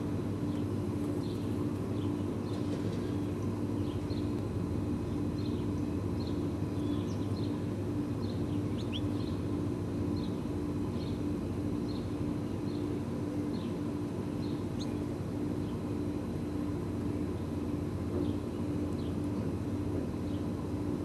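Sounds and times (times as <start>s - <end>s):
low mechanical hum: 0.0s - 21.0s
faint high bird chirps: 6.2s - 7.6s.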